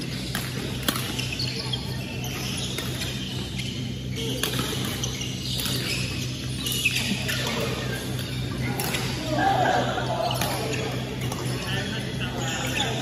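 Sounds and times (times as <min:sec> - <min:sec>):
shoes squeaking on court floor: 0:00.0 - 0:13.0
racket hitting shuttlecock: 0:00.1 - 0:01.2, 0:04.3 - 0:05.0.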